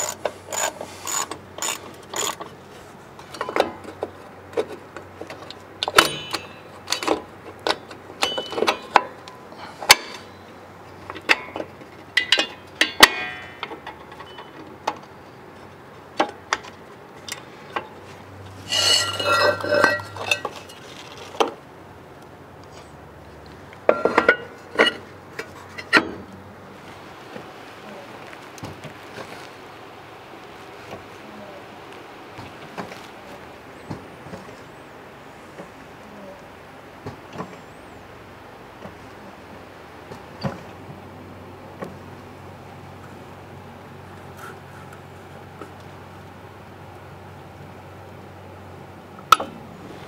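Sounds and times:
metal tools clinking: 5.9 - 7.2, 8.2 - 10.4, 12.2 - 14.6, 18.6 - 21.4
metallic rattle: 5.9 - 7.3, 8.2 - 9.3, 11.2 - 14.6, 18.6 - 21.4.

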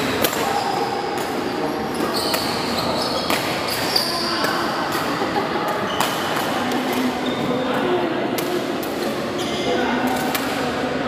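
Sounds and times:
shoes squeaking on court floor: 0.0 - 4.7
racket hitting shuttlecock: 3.2 - 5.2.

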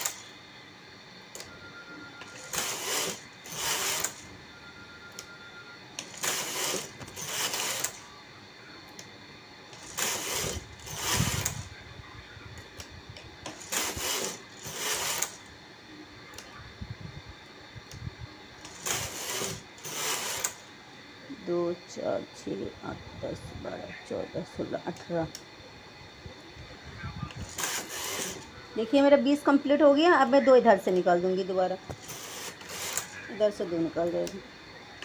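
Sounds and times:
knitting machine carriage sweeps: 0.0 - 0.2, 2.2 - 4.3, 6.0 - 8.0, 9.8 - 11.6, 13.5 - 15.4, 18.6 - 20.6, 27.4 - 28.5, 32.0 - 33.2.

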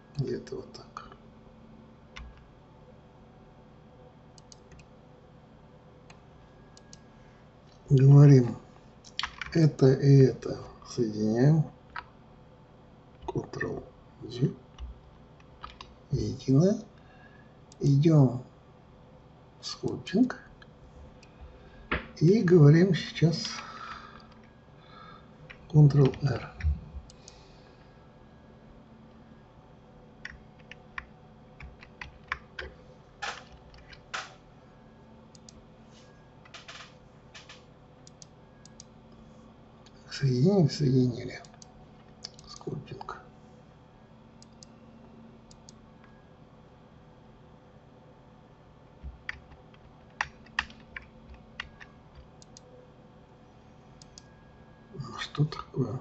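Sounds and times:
faint steady hum: 0.0 - 56.0
keyboard and mouse clicks: 9.1 - 9.6, 15.6 - 15.9, 25.5 - 27.4, 30.2 - 34.4, 36.4 - 38.9, 41.4 - 42.6, 49.0 - 52.7.

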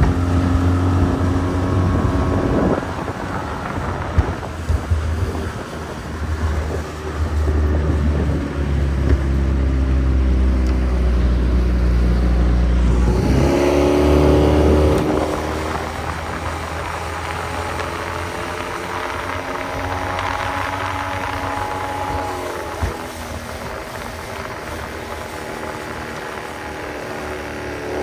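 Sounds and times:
outboard motor revving: 0.0 - 28.0
water spray off boat hull: 13.2 - 28.0.

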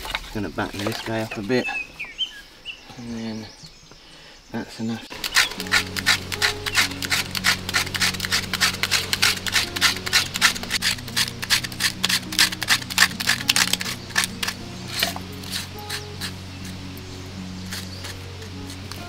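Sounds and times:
knife scraping bark: 5.1 - 19.0.

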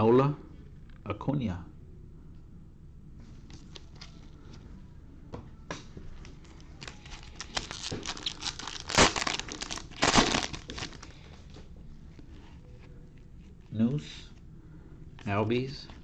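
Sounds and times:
foil ripping: 6.8 - 11.1
foil pack crinkling: 6.8 - 11.3.

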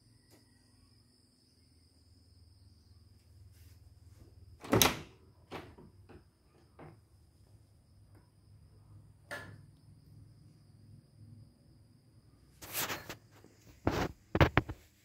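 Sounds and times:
crickets trilling: 0.0 - 15.0
door clunk: 4.6 - 6.2
wooden door opening: 4.6 - 6.2.

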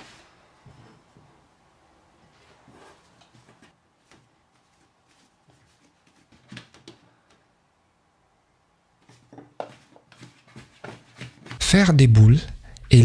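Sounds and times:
hands handling dough: 2.3 - 7.6, 9.0 - 11.6.

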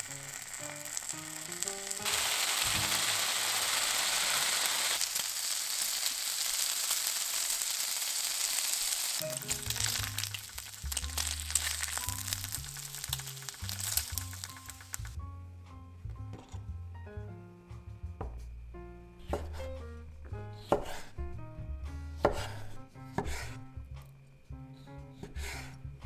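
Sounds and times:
bacon sizzling in a frying pan: 0.0 - 15.2.

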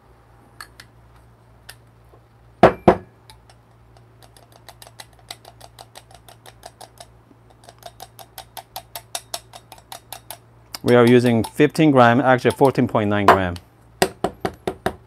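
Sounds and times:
grounds cup tapping: 4.2 - 15.0
sharp clacks: 4.3 - 11.8.

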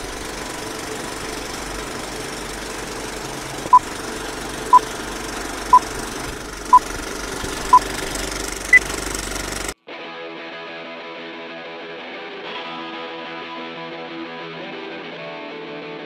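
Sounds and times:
mechanical rattling whir: 0.0 - 9.8.

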